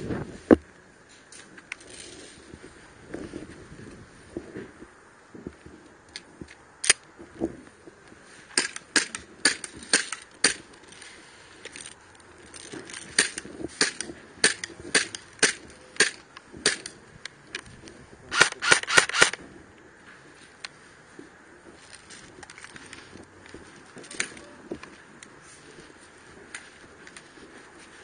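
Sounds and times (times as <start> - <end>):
airsoft gun shots: 18.3 - 19.4.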